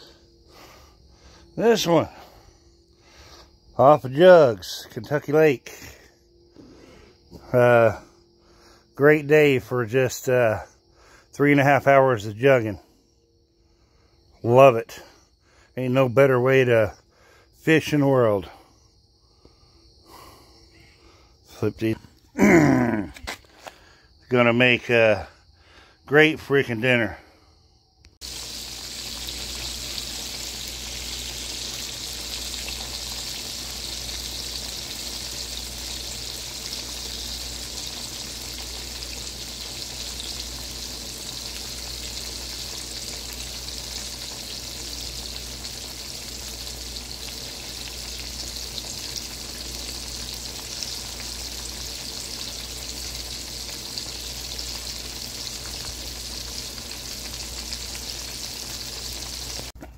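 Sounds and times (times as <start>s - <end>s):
fish deep-frying in oil: 28.2s - 59.8s.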